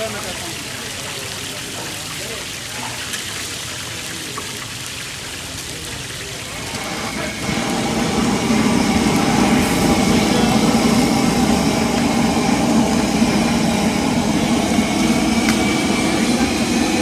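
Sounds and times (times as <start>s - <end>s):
loud low rumble: 6.6s - 17.0s.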